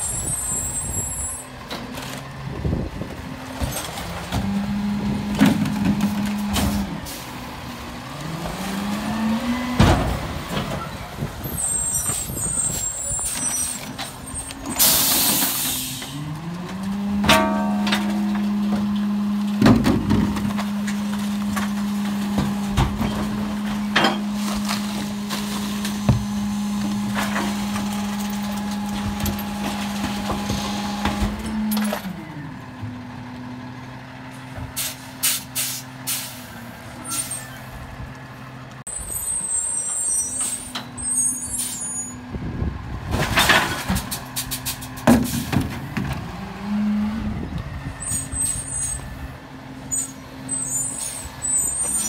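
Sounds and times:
garbage truck diesel engine: 0.0s - 52.0s
clanks of recyclables in hopper: 12.1s - 32.2s, 43.0s - 46.3s
air brakes hissing: 14.7s - 16.2s, 34.8s - 36.5s.

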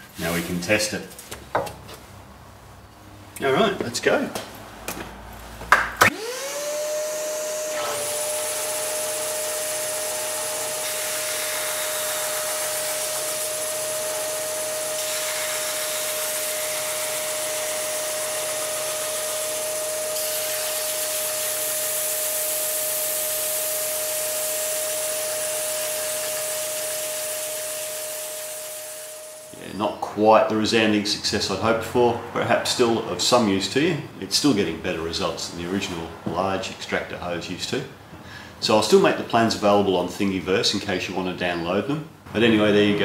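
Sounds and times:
belt sander whine: 6.0s - 29.7s
vacuum hose hiss: 6.1s - 29.6s.

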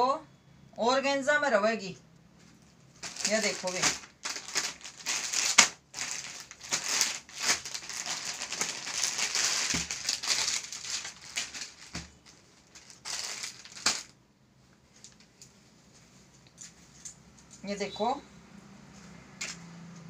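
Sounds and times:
plastic packaging crinkling: 2.4s - 14.2s, 14.8s - 15.5s.

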